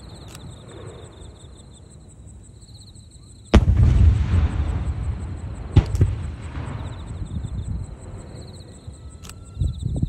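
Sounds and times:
sharp firework bangs: 3.5s - 8.9s
firework bang with rumbling echo: 3.6s - 8.4s.

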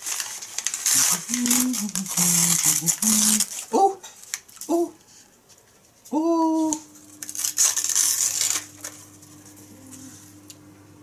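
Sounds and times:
wrapping paper crinkling and tearing: 0.0s - 4.9s, 6.5s - 10.2s
person humming: 1.0s - 4.0s, 4.7s - 5.0s, 6.1s - 7.0s, 9.6s - 10.4s.

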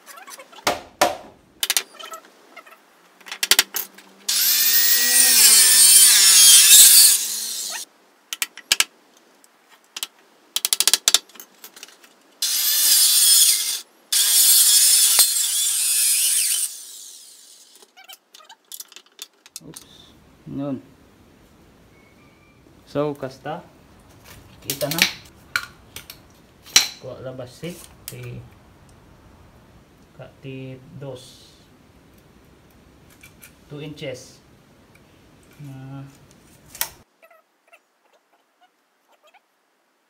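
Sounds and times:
circular saw cutting wood: 4.3s - 7.8s, 12.4s - 17.8s.

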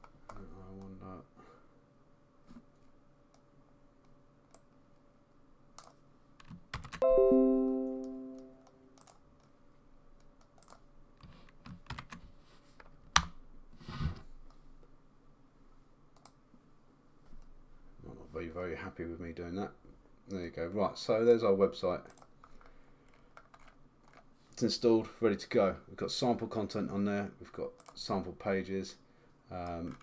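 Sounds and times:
keyboard and mouse clicks: 5.8s - 7.0s, 8.4s - 9.6s, 10.2s - 12.2s, 16.1s - 16.4s
desktop notification chime: 7.0s - 8.9s.

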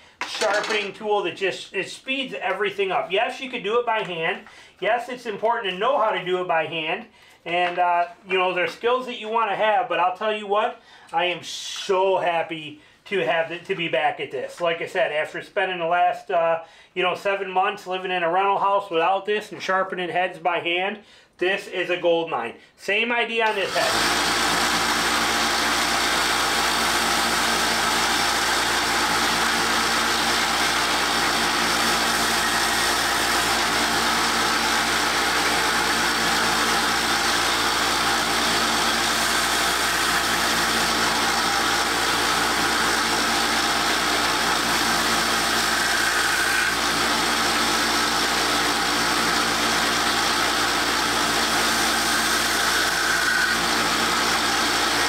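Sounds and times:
belt sander motor hum: 23.5s - 55.0s.

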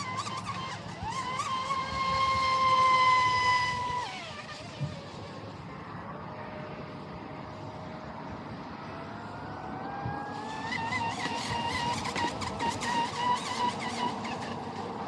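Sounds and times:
electric motor whining: 0.0s - 5.6s, 9.5s - 15.0s.

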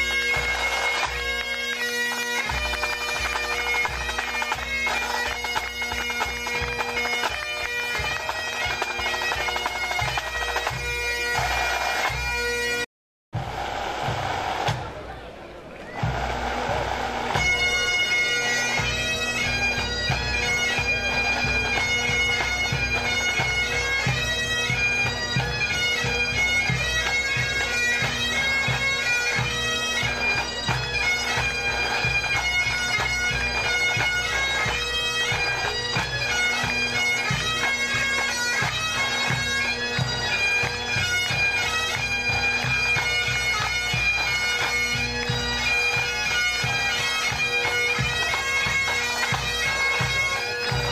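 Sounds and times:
bagpipes playing melody: 0.0s - 14.8s, 16.0s - 50.9s
snare drums: 13.3s - 15.2s, 15.9s - 17.6s.

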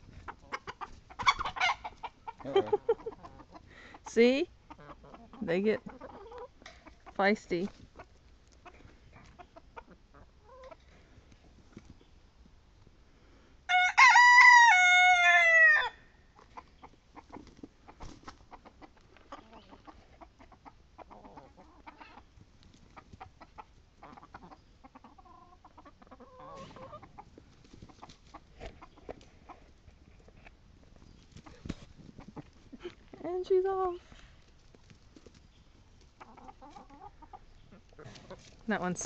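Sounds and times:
hens clucking: 0.0s - 12.0s, 15.2s - 39.0s
chickens pecking and scratching dirt: 0.0s - 39.0s
rooster crowing: 13.7s - 16.0s.

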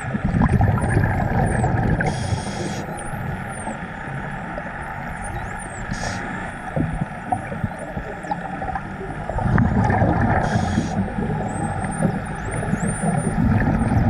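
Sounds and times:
low underwater rumble: 0.0s - 14.0s
short hissing bursts: 2.1s - 2.8s, 5.9s - 6.3s, 10.4s - 11.0s.

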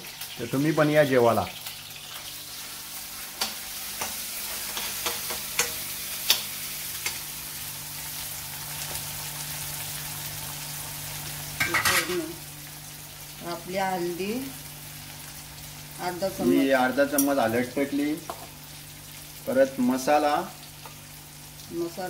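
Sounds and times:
food sizzling in hot oil: 0.0s - 22.0s
spoon scraping a pan: 11.6s - 12.2s.

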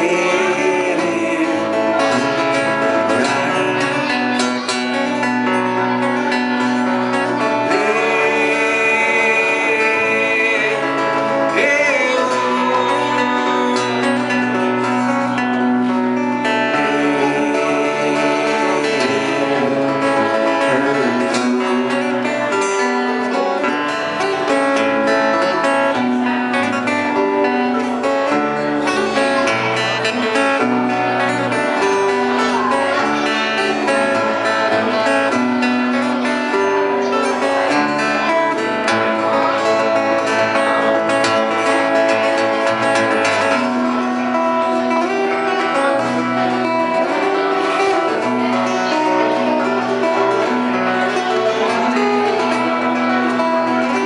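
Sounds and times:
acoustic guitar: 0.0s - 54.0s
electric bass guitar: 0.0s - 54.0s.

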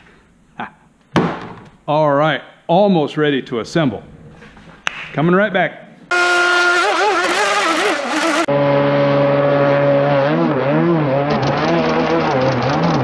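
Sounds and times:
model boat motor whining: 6.1s - 8.5s.

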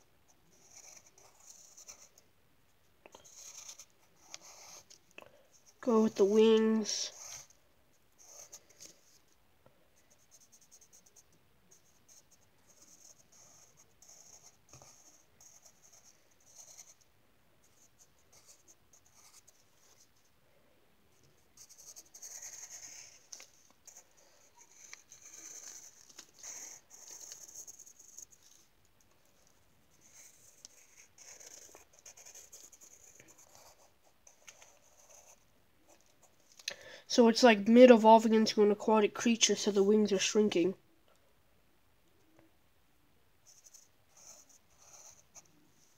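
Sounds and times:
pencil scratching on paper: 0.5s - 2.2s, 3.2s - 5.0s, 5.6s - 7.6s, 8.2s - 9.2s, 10.1s - 20.1s, 21.6s - 28.6s, 29.3s - 36.4s, 43.5s - 45.9s.

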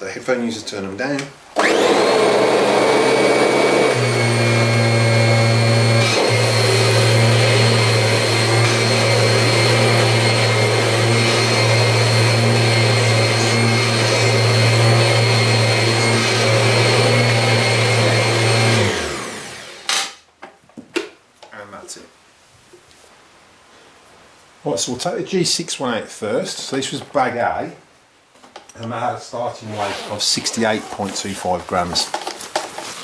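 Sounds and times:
upright vacuum cleaner running: 1.6s - 20.0s.

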